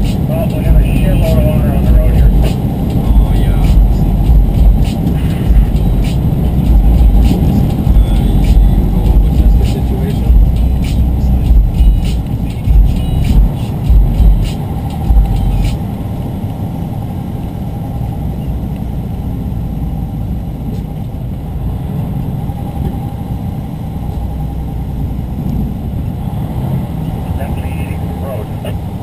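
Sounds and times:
vehicle road rumble: 0.0s - 29.0s
heavy thumps and knocks: 1.9s - 5.8s, 15.1s - 15.4s.

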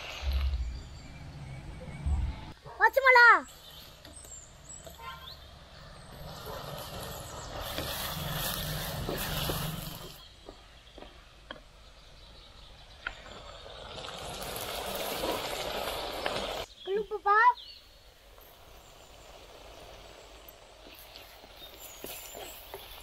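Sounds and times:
food sizzling in oil: 6.2s - 10.2s, 13.3s - 23.0s.

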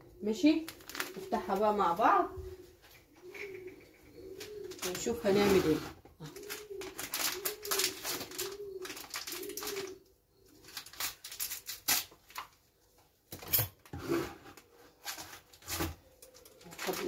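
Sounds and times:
pigeon cooing: 0.0s - 11.2s, 14.3s - 17.0s
scissors cutting plastic sachet: 0.7s - 1.2s, 6.4s - 9.9s, 10.6s - 12.5s.

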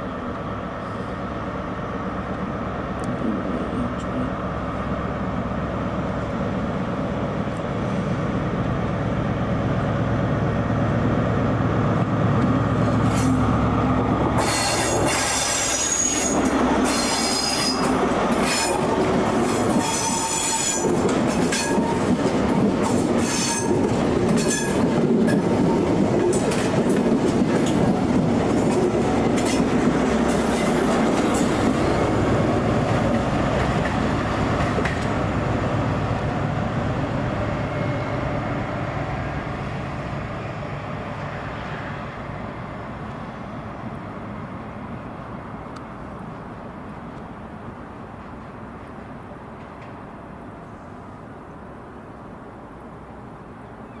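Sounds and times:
train low drone: 0.0s - 54.0s
wheels squealing against rails: 14.4s - 23.8s, 24.4s - 26.5s, 37.5s - 38.8s, 53.6s - 54.0s.

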